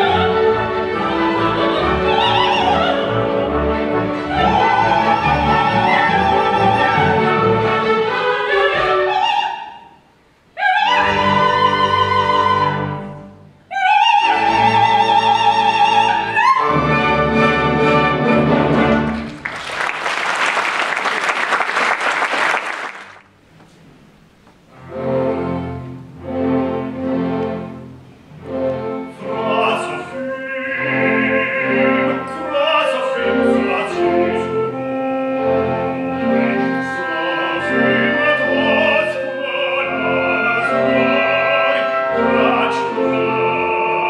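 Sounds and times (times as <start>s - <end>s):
audience applauding: 19.0s - 23.3s.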